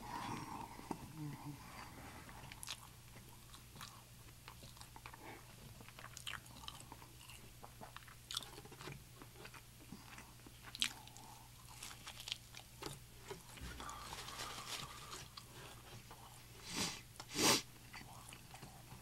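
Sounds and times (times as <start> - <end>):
chewing with mouth clicks: 2.4 - 13.6, 17.2 - 19.0.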